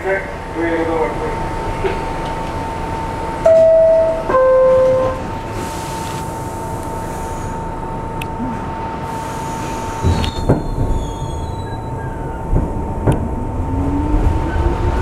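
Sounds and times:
two-tone door chime: 3.5 - 5.2.

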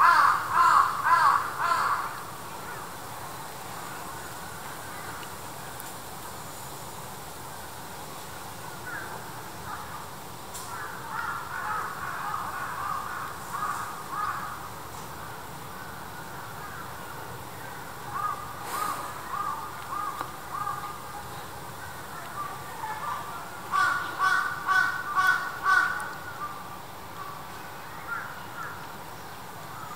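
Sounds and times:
crows cawing: 0.0 - 2.2, 10.7 - 14.7, 18.1 - 21.0, 23.7 - 26.2.

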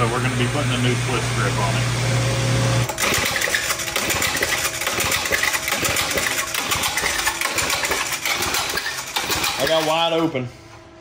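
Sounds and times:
steady hum: 0.0 - 11.0
recoil starter cranking engine: 2.9 - 10.3.

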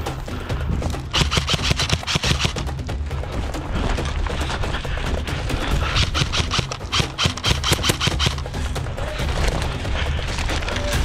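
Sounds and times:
airsoft guns firing bursts: 1.1 - 2.7, 5.8 - 8.6.

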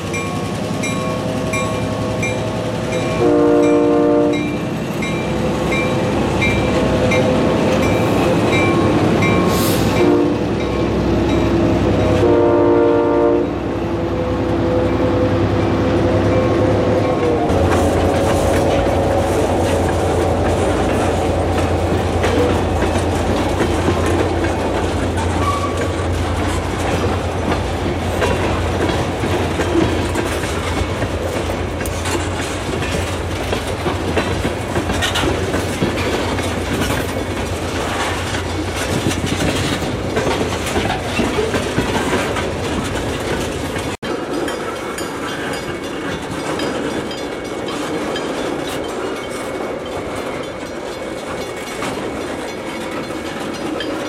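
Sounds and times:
train wheels clicking over rail joints: 17.0 - 54.0.

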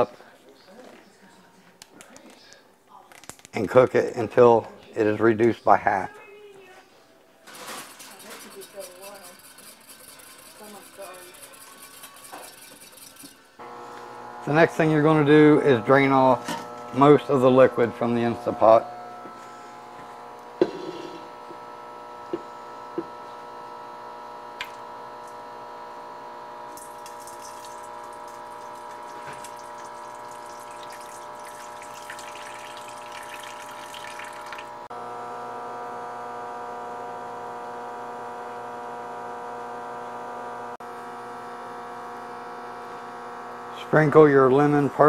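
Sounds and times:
steady electrical hum: 12.9 - 35.2
liquid splashing into colander: 26.8 - 34.7.

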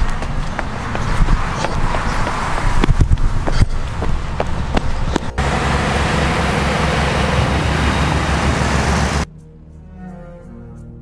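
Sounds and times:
quick footsteps: 0.0 - 5.4
wind buffeting microphone: 0.0 - 5.6.

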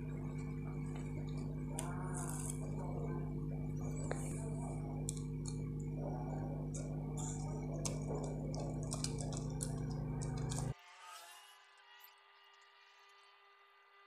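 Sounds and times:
steady low hum: 0.0 - 10.8.

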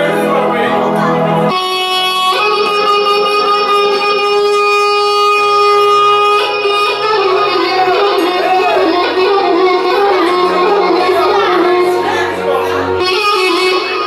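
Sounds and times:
reed wind instrument notes: 0.0 - 14.0.

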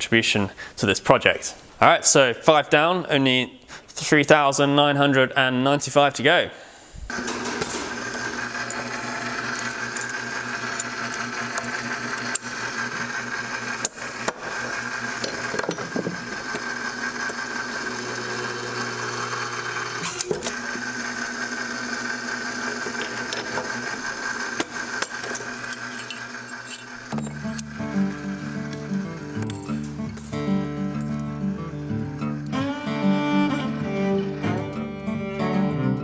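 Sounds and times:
electric motor and pump humming: 7.1 - 34.2
metal clicks and knocks: 13.8 - 16.6.

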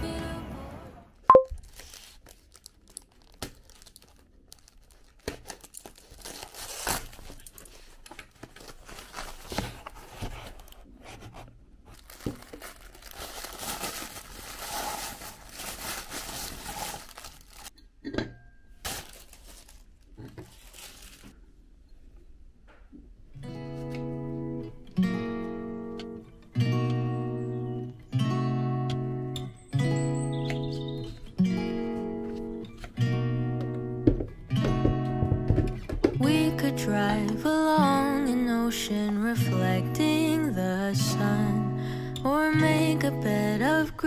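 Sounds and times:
packing material crinkling: 1.5 - 17.8, 18.8 - 21.4
cardboard tearing: 3.2 - 7.6, 8.5 - 11.3, 11.9 - 17.7, 18.8 - 19.8
taps and knocks handling items: 33.6 - 36.2.

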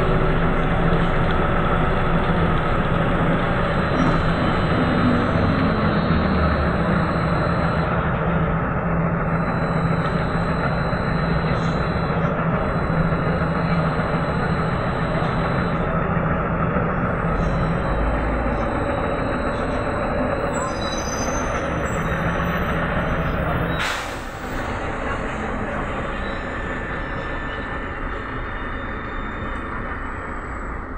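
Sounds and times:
trolleybus cabin running din: 0.0 - 30.9
high whining tones: 1.6 - 25.0.

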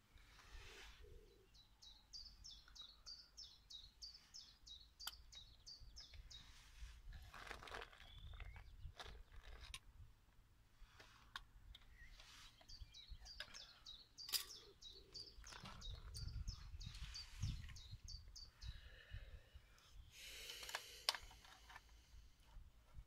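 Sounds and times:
songbird calling: 0.1 - 6.7, 7.9 - 9.6, 11.7 - 21.0.

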